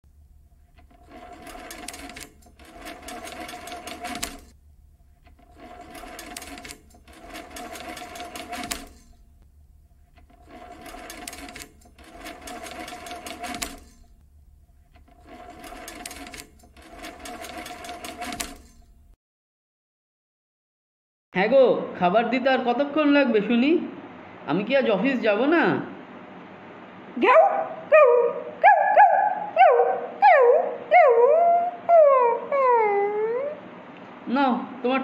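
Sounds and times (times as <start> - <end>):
rapid mechanical clattering: 0.6 - 9.3, 10.0 - 14.2, 14.8 - 19.0.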